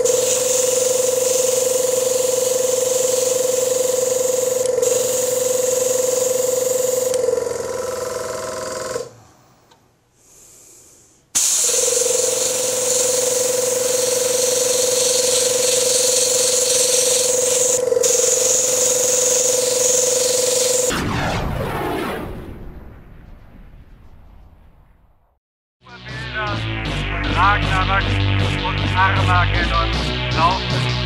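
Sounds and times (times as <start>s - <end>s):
airbrush spraying hiss: 0.0s - 6.9s, 10.3s - 20.9s
air compressor humming: 0.0s - 9.3s, 10.3s - 20.9s.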